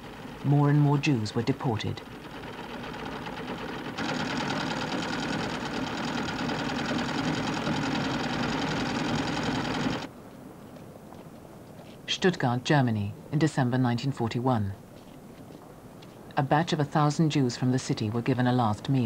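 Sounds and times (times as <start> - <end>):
sewing machines clattering: 1.8 - 10.1.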